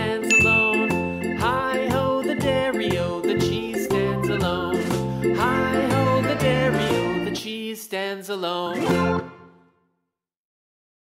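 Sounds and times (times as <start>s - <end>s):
background music: 0.0s - 7.6s, 8.6s - 9.8s.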